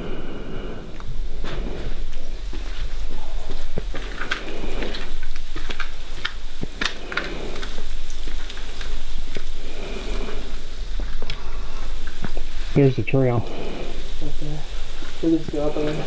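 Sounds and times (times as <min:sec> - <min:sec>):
crackles and ticks: 0:00.9 - 0:16.0
footsteps crunching on gritty floor: 0:01.4 - 0:10.0.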